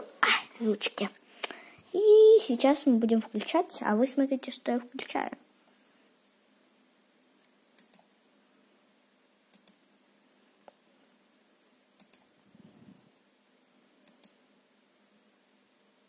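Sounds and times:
computer mouse clicks: 0:07.4 - 0:08.1, 0:09.5 - 0:09.8, 0:12.0 - 0:12.3, 0:14.0 - 0:14.4.

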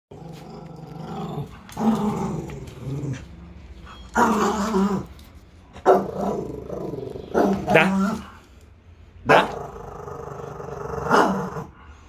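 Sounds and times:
small dog growling: 0:00.1 - 0:03.4, 0:09.3 - 0:11.7.

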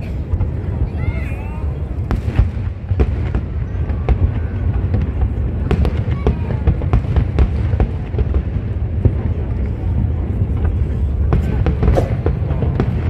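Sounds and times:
fireworks booming: 0:00.0 - 0:13.0
fireworks popping and crackling: 0:00.0 - 0:13.0.

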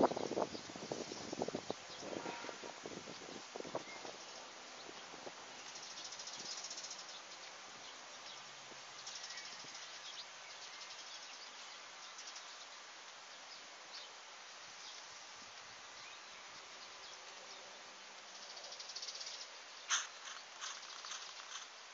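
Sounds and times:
steady high hiss: 0:00.0 - 0:21.9
insects chirring: 0:18.3 - 0:21.9.

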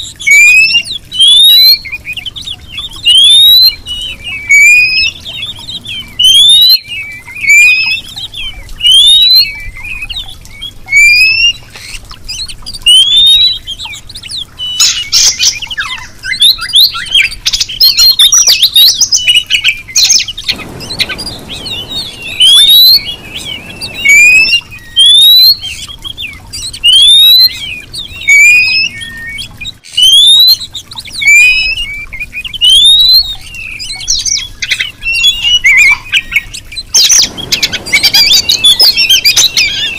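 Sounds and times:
bird rising whistle: 0:03.0 - 0:10.1, 0:14.8 - 0:30.6, 0:32.6 - 0:34.4, 0:35.0 - 0:39.9
bird chirps and squawks: 0:19.6 - 0:31.8, 0:32.6 - 0:39.9.

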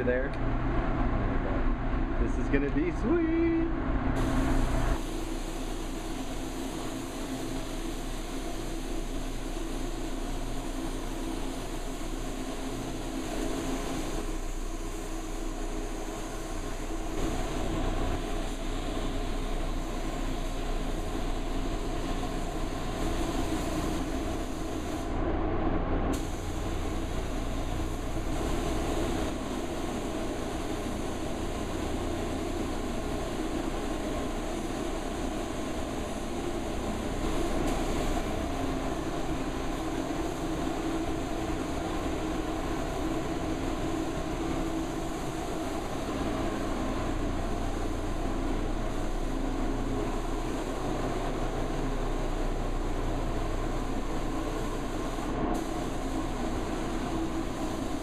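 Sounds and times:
ventilation air noise: 0:00.0 - 0:58.0
spray gun hissing: 0:04.2 - 0:25.1, 0:26.1 - 0:58.0.

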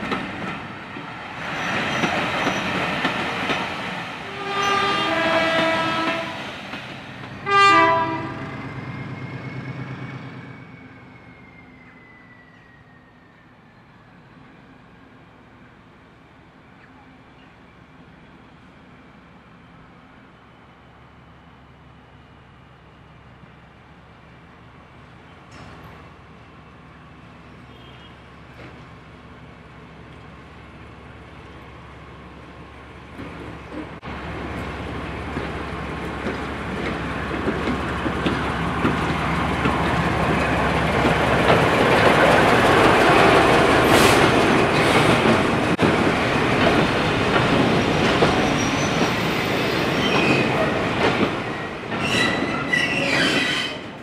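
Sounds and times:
train wheels rumbling and clacking: 0:00.0 - 0:10.6, 0:33.0 - 0:54.0
high wheel squeal: 0:48.4 - 0:50.6, 0:51.5 - 0:53.9.

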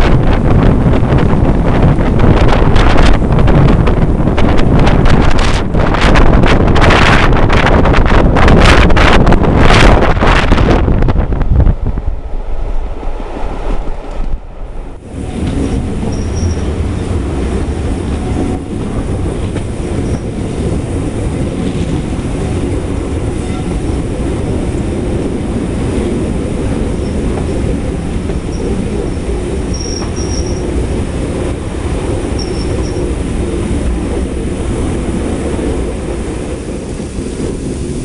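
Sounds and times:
train coaches rumbling on rails: 0:00.0 - 0:38.0
wind buffeting microphone: 0:00.0 - 0:38.0
wheel squeals: 0:15.4 - 0:16.7, 0:29.7 - 0:30.7, 0:32.4 - 0:33.1.

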